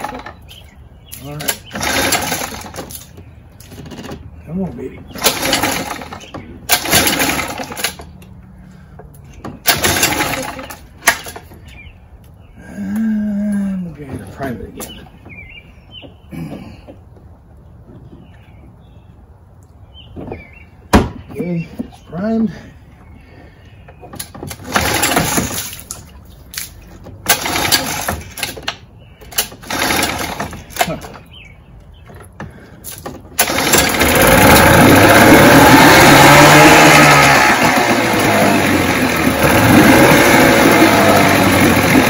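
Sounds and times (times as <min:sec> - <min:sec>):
outboard recoil starter rope pulls: 0:00.0 - 0:00.4, 0:01.1 - 0:08.3, 0:09.3 - 0:11.8, 0:23.9 - 0:31.3, 0:32.2 - 0:42.0.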